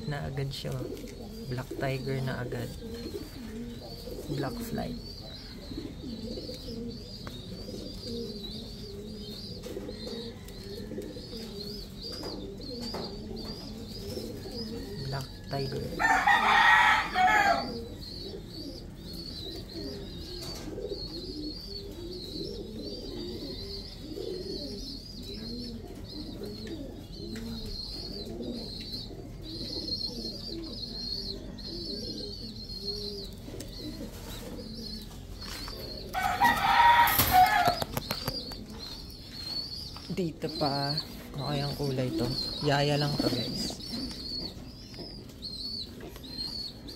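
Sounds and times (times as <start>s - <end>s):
pigeons cooing: 0.0s - 46.9s
rooster crowing: 15.5s - 17.8s, 36.1s - 37.9s.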